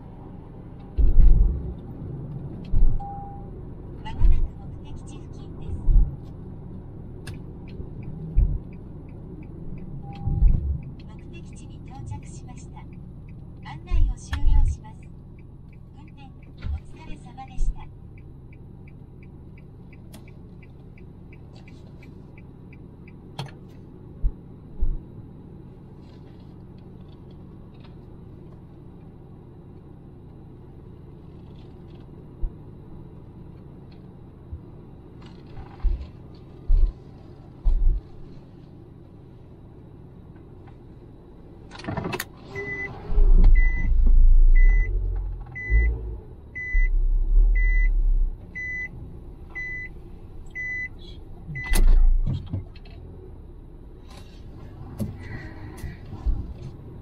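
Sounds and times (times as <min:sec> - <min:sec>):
steady low hum: 0:00.0 - 0:41.7, 0:42.7 - 0:57.0
car warning chime beeping: 0:03.0 - 0:03.5, 0:42.6 - 0:42.9, 0:43.6 - 0:44.0, 0:44.6 - 0:46.0, 0:46.6 - 0:48.9, 0:49.5 - 0:52.0.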